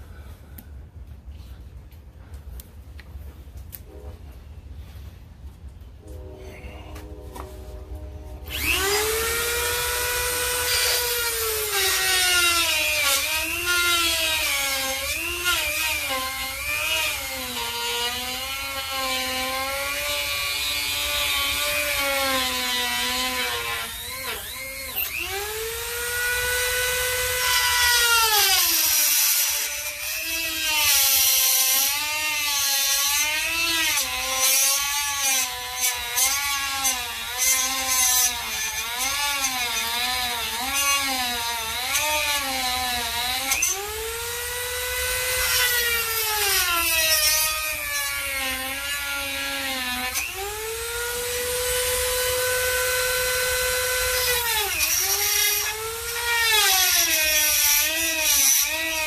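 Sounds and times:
rotary tool motor whine: 8.4 - 59.0.

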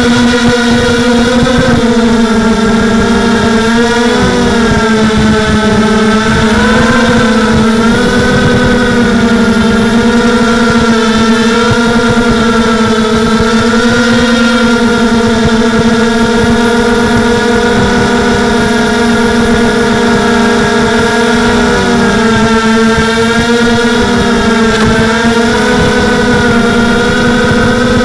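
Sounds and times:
drone motors whining: 0.0 - 28.0.

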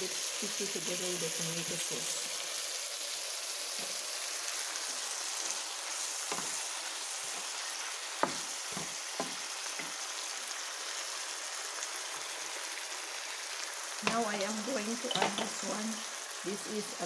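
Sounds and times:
food sizzling in a frying pan: 0.0 - 17.0.

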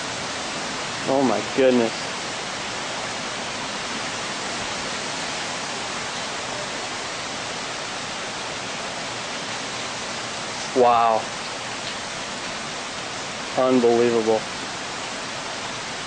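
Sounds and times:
rain hissing: 0.0 - 16.0.

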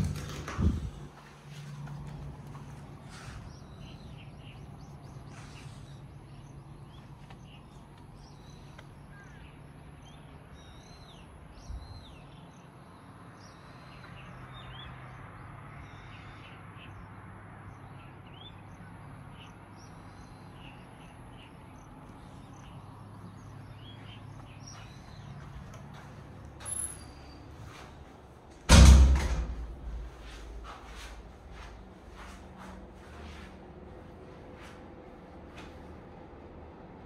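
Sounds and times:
birds chirping: 0.0 - 28.5.

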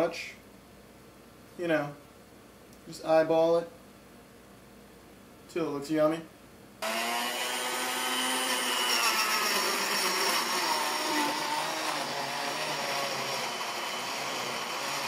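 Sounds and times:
electric blender running: 6.8 - 15.0.

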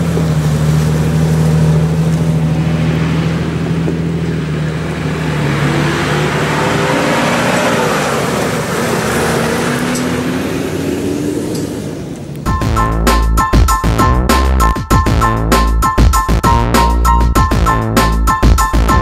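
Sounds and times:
suv engines driving past: 0.0 - 12.5.

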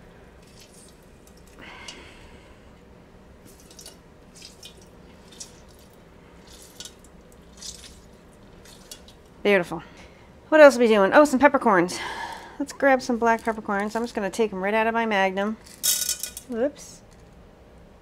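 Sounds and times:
juice dripping into water: 3.5 - 9.4.

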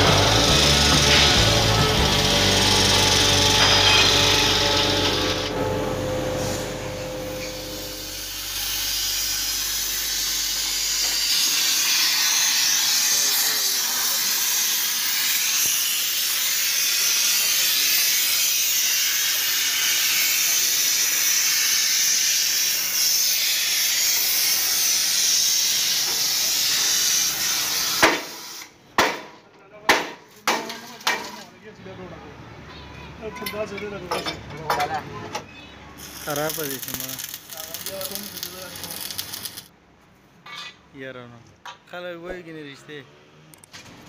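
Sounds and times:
pressurized gas hissing: 0.0 - 28.8, 36.0 - 39.7.

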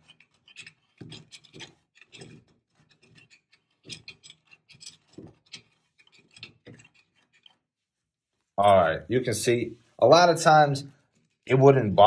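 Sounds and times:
screwdriver scraping in outlet box: 0.0 - 7.6.

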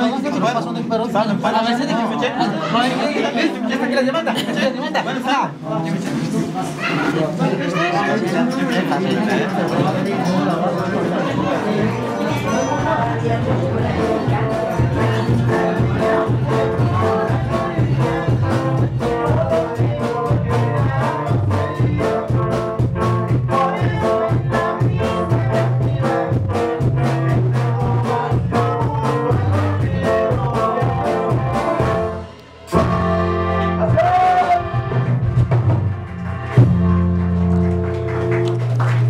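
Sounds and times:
music with quick beat: 11.8 - 39.0.

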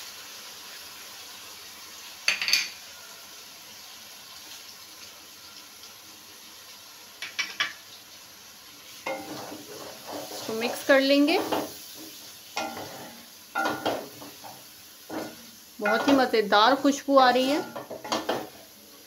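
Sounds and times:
food simmering and sizzling: 0.0 - 19.0
utensils knocking on pan: 7.2 - 7.8, 9.1 - 11.7, 12.6 - 16.4, 17.4 - 18.6
stirring in pan: 8.8 - 18.8.

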